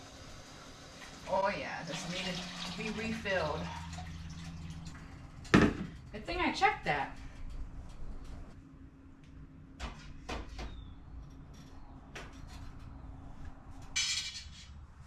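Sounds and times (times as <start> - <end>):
kitchen items knocking and clicking: 5.5 - 6.0.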